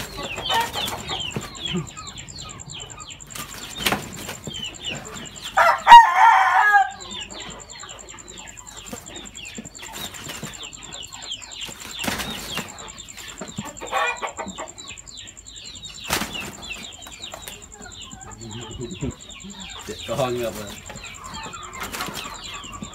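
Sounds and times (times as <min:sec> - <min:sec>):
chicken squawk: 0:00.0 - 0:04.0, 0:04.8 - 0:09.2, 0:11.0 - 0:15.0
high chirping: 0:00.0 - 0:22.9
wings flapping and striking: 0:03.3 - 0:04.7, 0:11.6 - 0:13.4, 0:16.0 - 0:16.8.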